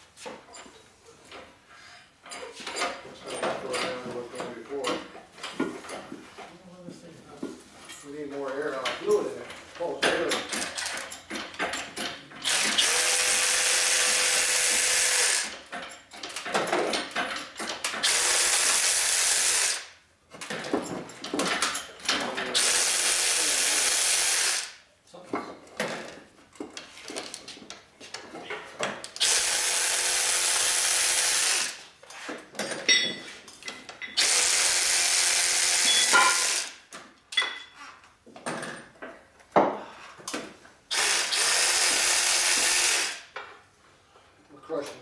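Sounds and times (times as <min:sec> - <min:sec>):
metallic clanks and clicks: 0:08.8 - 0:12.6
power tool hissing: 0:40.9 - 0:43.3.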